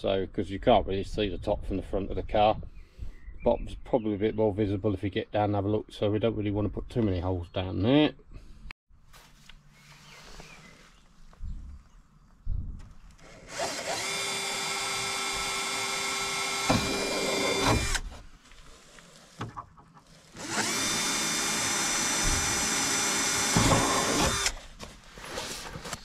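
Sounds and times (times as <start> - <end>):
cordless drill whining: 13.1 - 19.2, 20.3 - 24.6.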